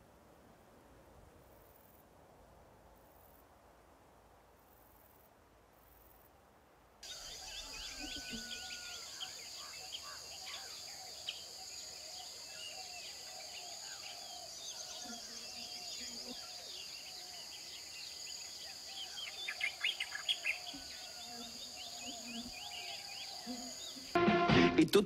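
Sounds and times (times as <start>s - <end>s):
birds chirping: 7.0s - 24.2s
insects trilling: 7.0s - 24.2s.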